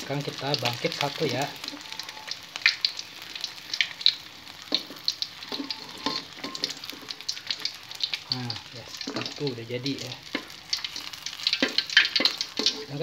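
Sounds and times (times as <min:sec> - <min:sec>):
hot oil crackling and popping: 0:00.0 - 0:13.0
spatula scraping a wok: 0:04.6 - 0:07.2, 0:10.3 - 0:13.0.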